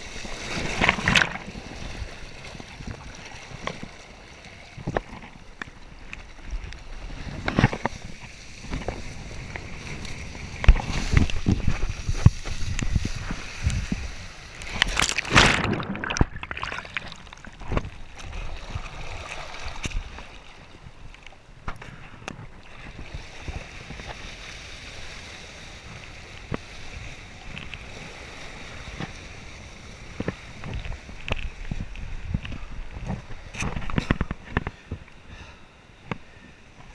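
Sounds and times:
wind buffeting microphone: 6.5s - 16.5s
water splashing against board: 14.6s - 20.3s.

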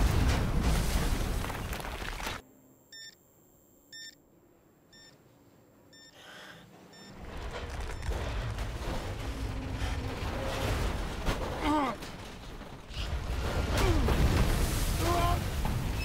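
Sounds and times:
falling rock rumble: 0.0s - 2.4s, 7.2s - 16.0s
electronic warning beeps: 2.9s - 3.2s, 3.9s - 4.2s, 4.9s - 5.2s, 5.9s - 6.2s, 6.9s - 7.2s.

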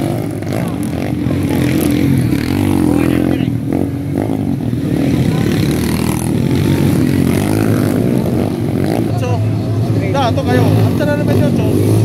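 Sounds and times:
dirt bike engines revving: 0.0s - 12.0s.

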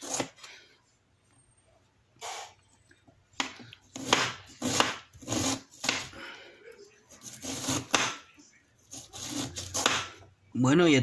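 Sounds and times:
knife slicing onion: 0.0s - 0.4s, 3.4s - 6.2s, 7.1s - 8.2s, 8.9s - 10.2s.

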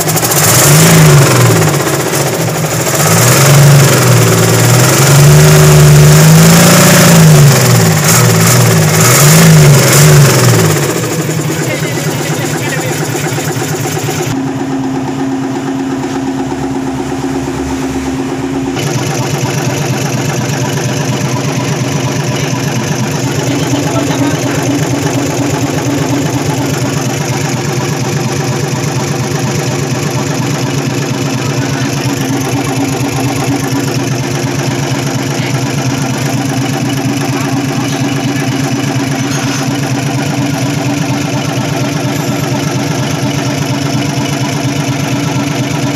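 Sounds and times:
diesel engine idling: 0.0s - 45.9s.

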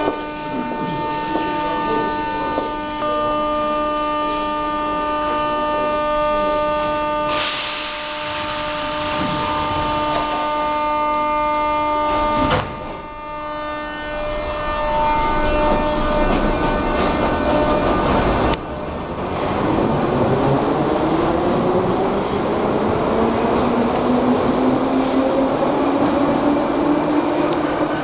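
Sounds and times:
train electrical hum: 0.0s - 28.0s
loud air hiss: 7.3s - 9.7s
train pulling away: 7.3s - 10.5s.

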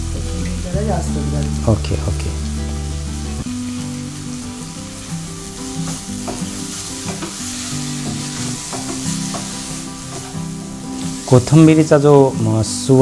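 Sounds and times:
food sizzling in a pan: 0.0s - 13.0s
spatula scraping and tapping: 5.9s - 10.5s.

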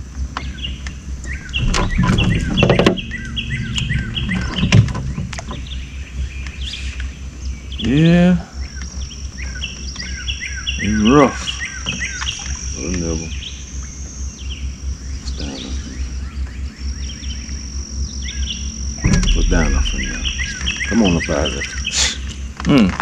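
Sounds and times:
insect buzzing: 0.0s - 7.7s, 8.6s - 22.3s
birds chirping: 0.0s - 22.6s
low rumble: 0.5s - 7.8s, 18.9s - 21.6s.

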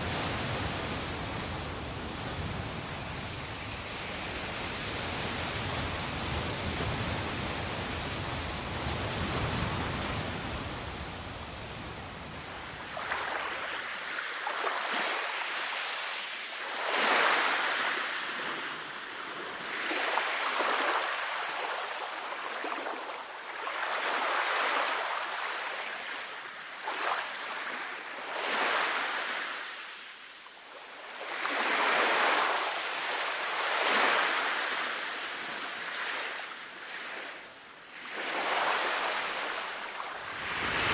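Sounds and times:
ocean waves on a sandy beach: 0.0s - 40.9s.

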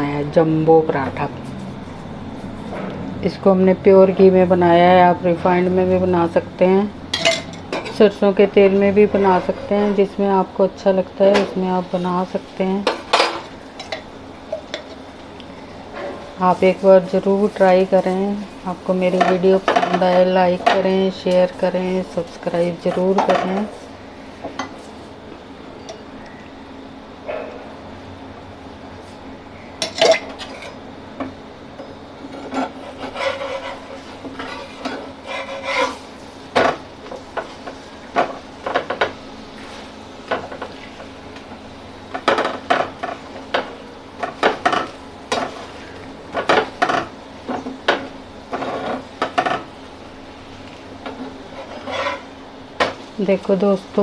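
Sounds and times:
low steady hum: 0.0s - 54.0s
metal spatula scraping griddle: 32.3s - 36.2s, 51.1s - 52.3s.

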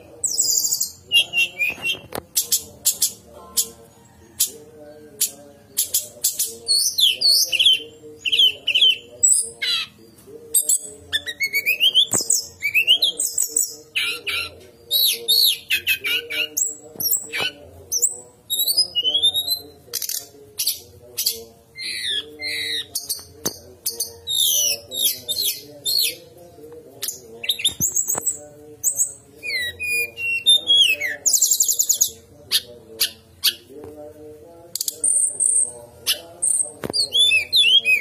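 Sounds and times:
bird singing whistled song: 28.9s - 31.8s.

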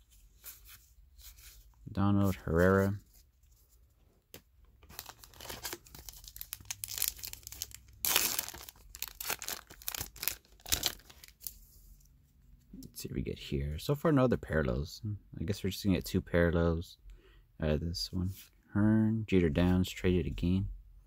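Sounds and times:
foil wrapper tearing and crinkling: 4.9s - 11.5s.

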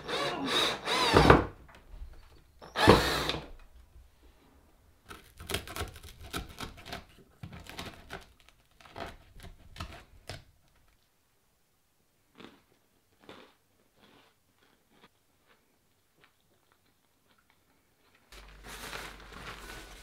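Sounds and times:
handheld drill running: 0.0s - 1.5s, 2.7s - 3.5s.

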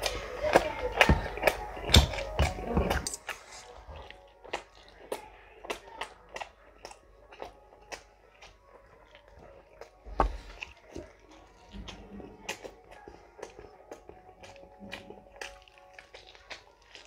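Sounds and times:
chewing and biting: 0.0s - 17.0s
wet mouth clicks: 11.7s - 17.0s.

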